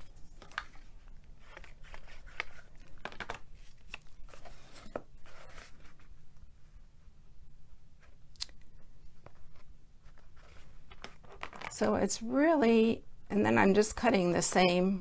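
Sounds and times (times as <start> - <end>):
paper rustling and crinkling: 0.0 - 6.1, 9.2 - 11.8.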